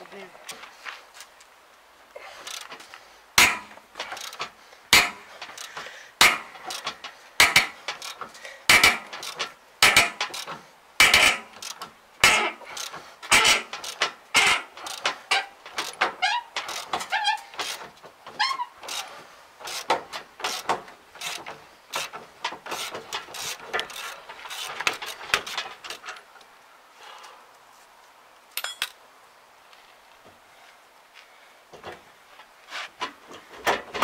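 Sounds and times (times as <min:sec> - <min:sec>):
ratchet wrench clacking and clicking: 0:03.4 - 0:17.8, 0:18.8 - 0:26.0
short squeaks: 0:11.1 - 0:26.0.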